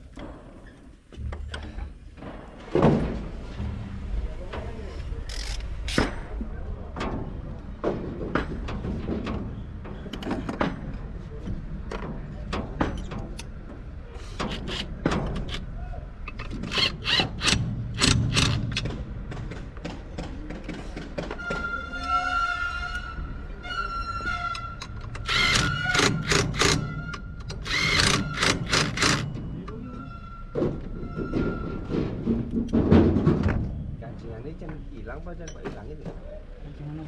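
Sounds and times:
low rumble: 1.2s - 10.2s.

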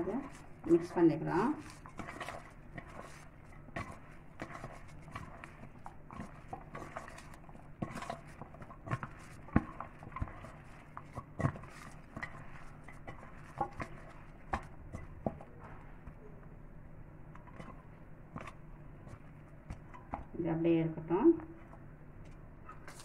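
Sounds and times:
hand squishing mashed potato: 0.0s - 20.4s, 21.3s - 23.0s.

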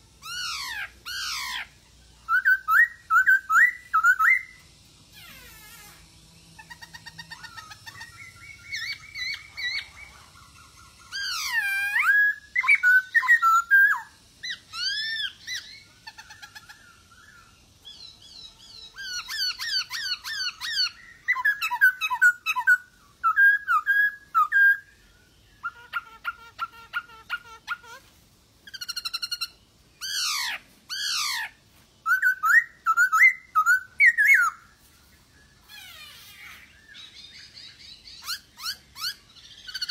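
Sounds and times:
bird singing whistled phrases: 0.2s - 4.7s, 6.6s - 10.2s, 10.8s - 16.2s, 17.2s - 28.0s, 28.7s - 34.7s.

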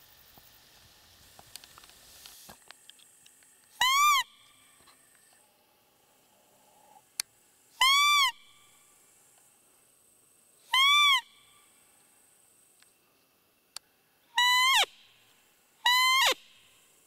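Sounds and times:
squeaking deer call whistle: 3.8s - 4.6s, 7.8s - 8.7s, 10.7s - 11.6s, 14.3s - 15.1s, 15.8s - 16.8s.

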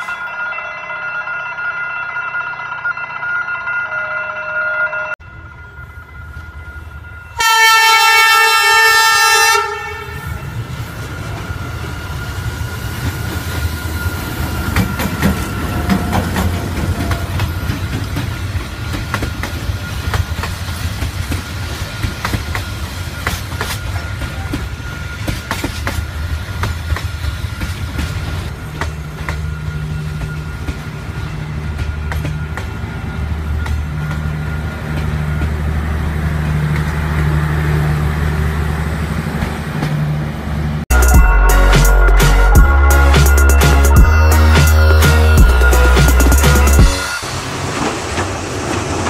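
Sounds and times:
train rumbling past: 5.0s - 49.0s
train horn blast: 7.4s - 10.6s
wheels clacking over rail joints: 10.7s - 37.8s.

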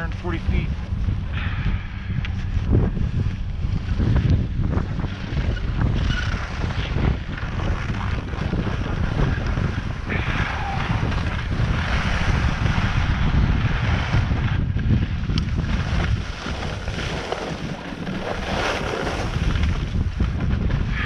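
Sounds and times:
wind buffeting microphone: 0.0s - 21.0s
skis sliding over snow: 4.8s - 14.6s, 15.4s - 21.0s.

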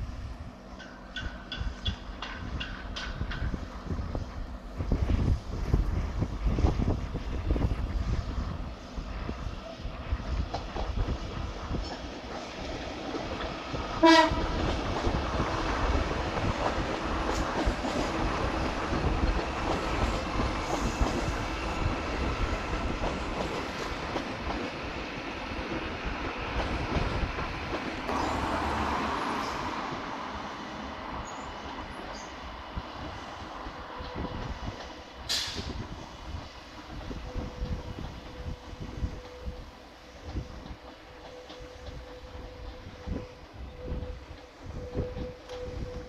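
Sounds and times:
electric train passing: 0.0s - 46.0s
wheels on track: 0.6s - 46.0s
train horn blast: 14.0s - 14.6s.

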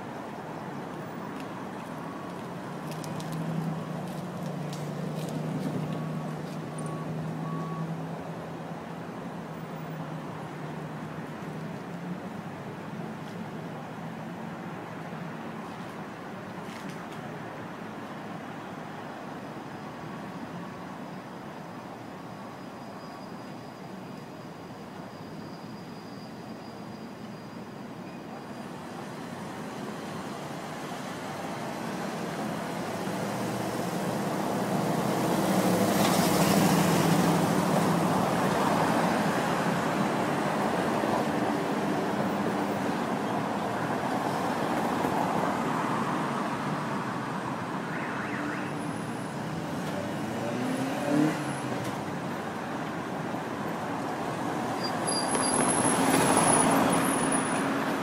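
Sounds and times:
cars passing by: 0.0s - 58.0s.

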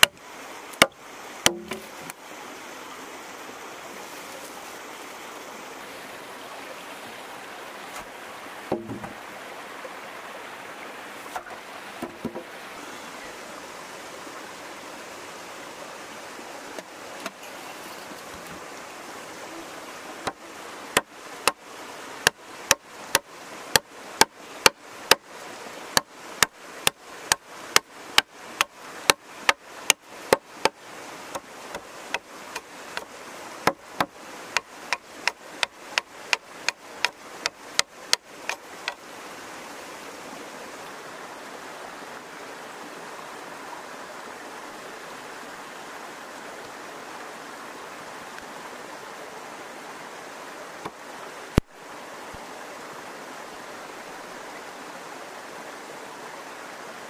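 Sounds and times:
logs knocking: 0.0s - 0.2s, 0.8s - 2.0s, 8.7s - 9.2s, 11.3s - 12.5s, 26.0s - 39.0s
stream rushing: 0.0s - 57.0s
machete chopping log: 0.8s - 1.9s, 8.7s - 9.2s, 33.7s - 39.0s.

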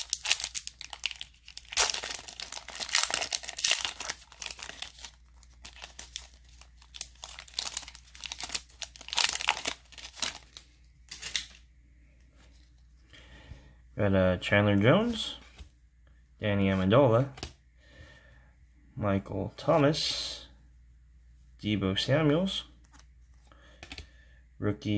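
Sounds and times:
foil wrapper tearing and crinkling: 0.0s - 11.6s.

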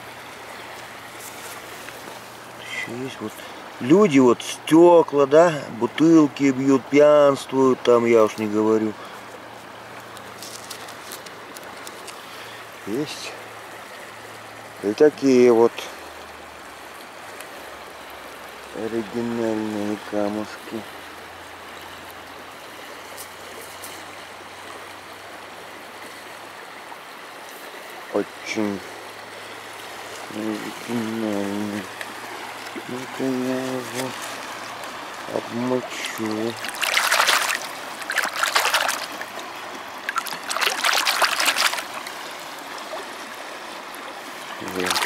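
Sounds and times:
river water washing: 0.0s - 45.0s
pebble splashing in shallow water: 35.9s - 42.2s, 44.6s - 45.0s.

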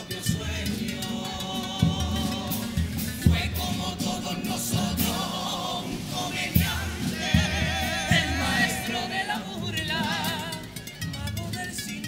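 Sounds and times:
chorus singing with vibrato: 0.0s - 12.0s
bass drum strokes: 1.8s - 9.2s.

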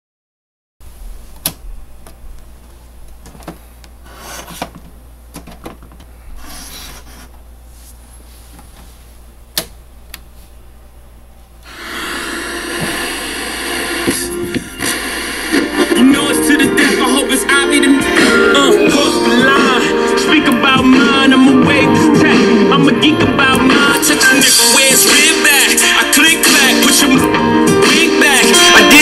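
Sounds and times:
radio tuning hiss: 11.6s - 18.6s.

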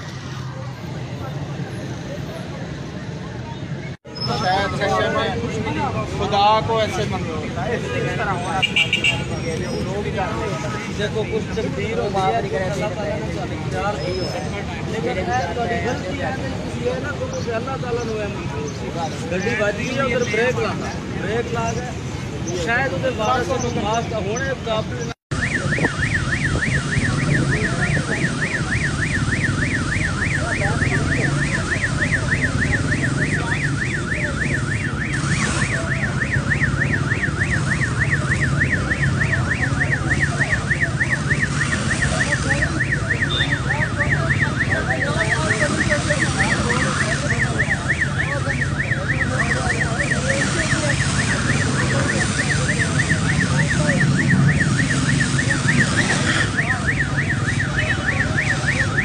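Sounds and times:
electronic alarm siren warbling: 25.3s - 59.0s
water spraying: 25.4s - 59.0s.

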